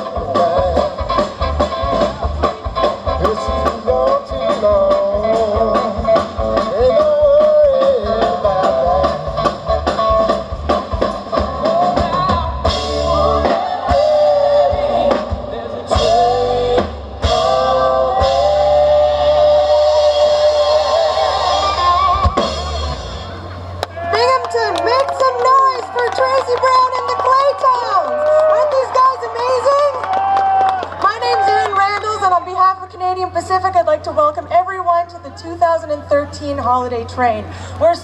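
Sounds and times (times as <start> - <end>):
live band playing: 0.0 - 38.0
person singing: 3.2 - 10.0, 11.5 - 22.4.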